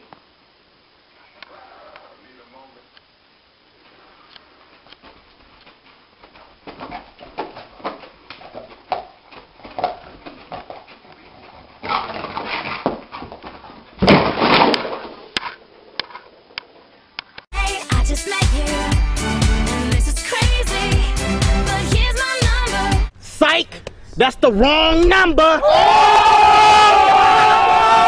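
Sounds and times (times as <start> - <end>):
dog scrambling up: 9.7 - 15.3.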